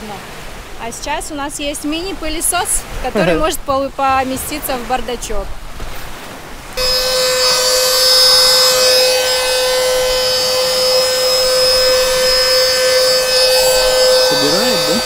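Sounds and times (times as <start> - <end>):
mini vacuum cleaner whining: 6.8 - 15.0.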